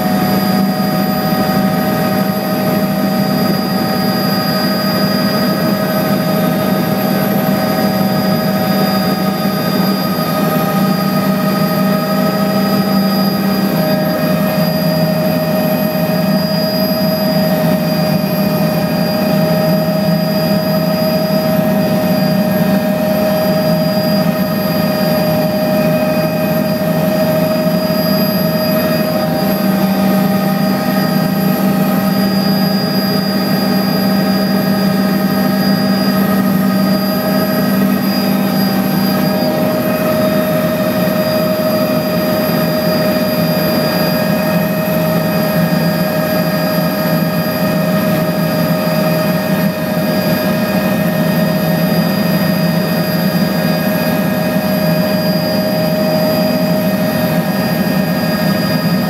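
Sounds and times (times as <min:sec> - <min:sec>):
small aircraft engine drone: 0:00.0 - 0:59.0.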